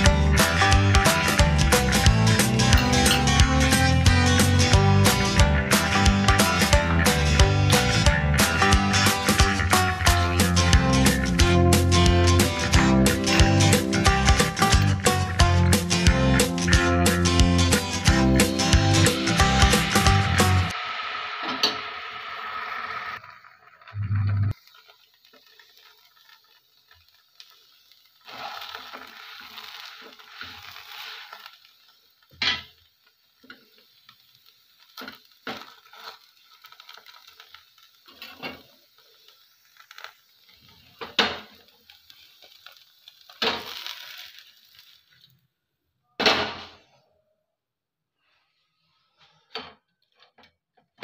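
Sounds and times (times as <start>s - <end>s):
pan hissing: 2.0s - 26.5s, 27.4s - 32.1s
pan and utensils clattering: 2.7s - 3.4s, 32.3s - 32.8s.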